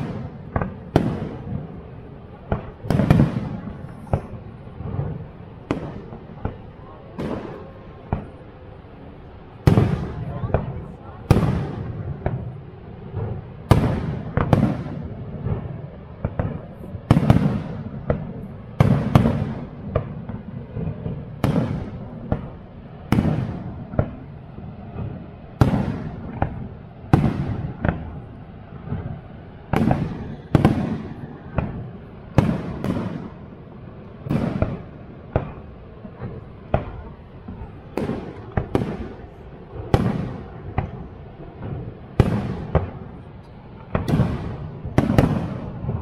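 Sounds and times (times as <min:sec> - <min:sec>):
steady low rush: 0:00.0 - 0:18.8.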